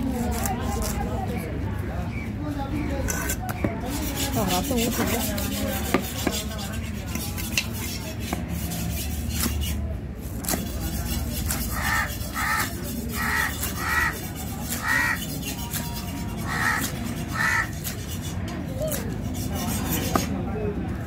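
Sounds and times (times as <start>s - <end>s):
knife chopping fish on wooden block: 4.6s - 8.6s, 9.2s - 9.7s, 10.4s - 10.8s
crow cawing: 11.7s - 14.2s, 14.8s - 15.2s, 16.4s - 17.8s.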